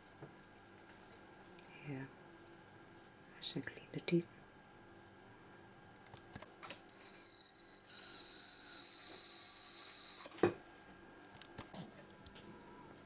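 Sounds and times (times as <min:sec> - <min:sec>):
dental scaler high-pitched hiss: 0:06.9 - 0:10.3.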